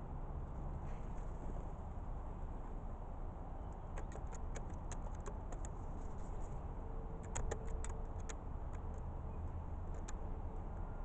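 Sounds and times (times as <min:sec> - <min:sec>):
sharp ticks and clicks: 0:03.7 - 0:06.0, 0:07.1 - 0:09.1, 0:09.8 - 0:10.4.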